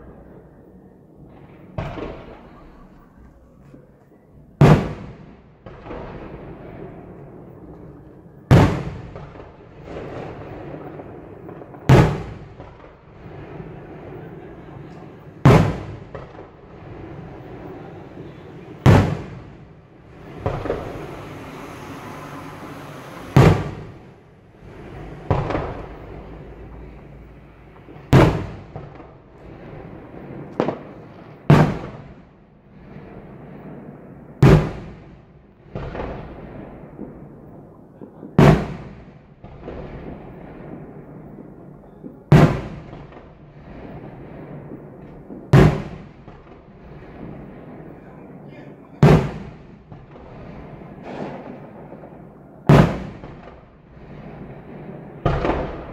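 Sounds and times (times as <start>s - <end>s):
fireworks display background noise: 0.0s - 55.9s
firework shell bursts: 20.1s - 26.5s.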